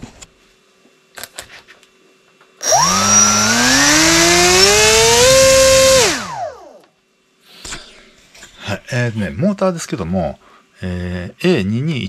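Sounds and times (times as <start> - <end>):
electric motor and propeller whine: 2.6 - 6.8.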